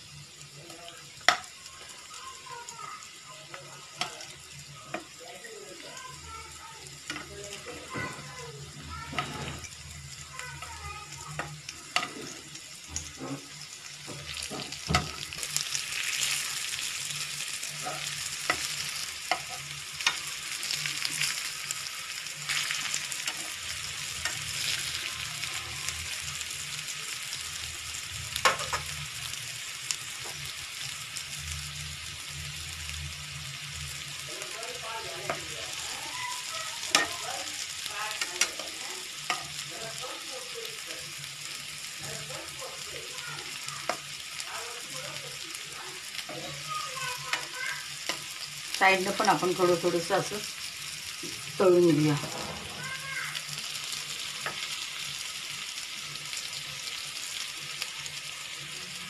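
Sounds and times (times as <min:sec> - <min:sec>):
patties sizzling in oil: 0:00.0 - 0:59.0
metal spatula tapping pan: 0:36.8 - 0:37.2.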